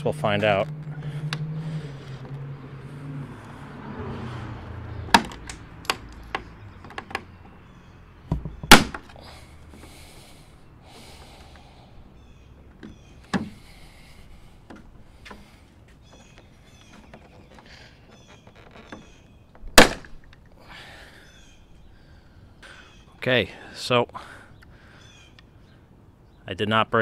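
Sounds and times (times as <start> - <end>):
plastic clips snapping: 5.1 - 7.3.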